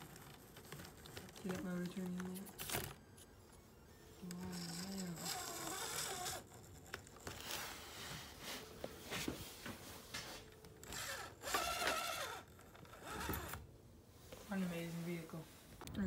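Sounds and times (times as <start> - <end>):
electric motor and gears whirring: 0.0 - 7.9, 10.8 - 13.7.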